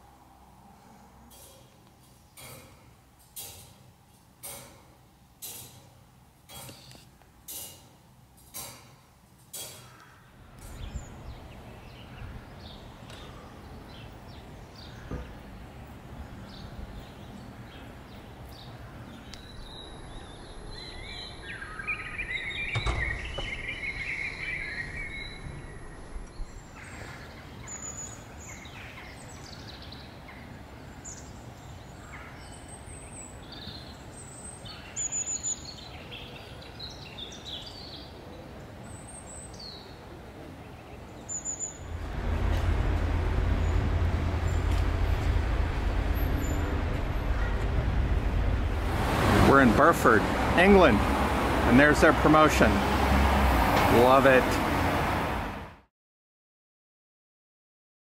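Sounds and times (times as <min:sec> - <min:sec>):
birds chirping: 0:09.7 - 0:40.0, 0:40.6 - 0:52.8
shallow river flowing: 0:41.8 - 0:51.8.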